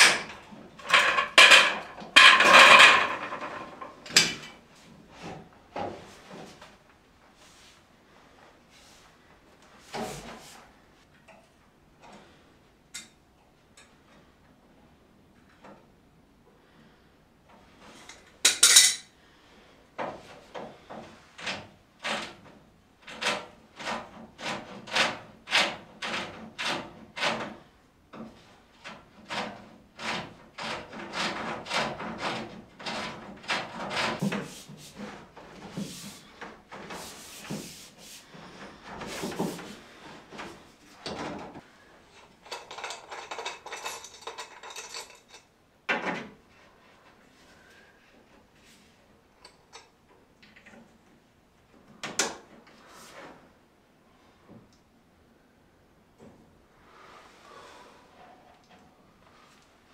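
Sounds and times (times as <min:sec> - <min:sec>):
pipes and tools clattering: 0:00.0 - 0:04.6, 0:18.0 - 0:19.1, 0:20.0 - 0:46.3
scraping on pipes: 0:00.0 - 0:06.7, 0:20.0 - 0:45.5.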